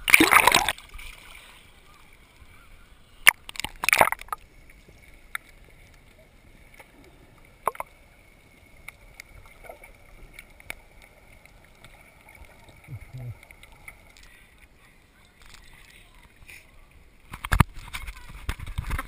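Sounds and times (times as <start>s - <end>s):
sharp underwater clicks: 0.0s - 1.2s, 3.2s - 4.5s, 7.6s - 8.0s, 17.2s - 19.0s
water splashing: 0.0s - 19.0s.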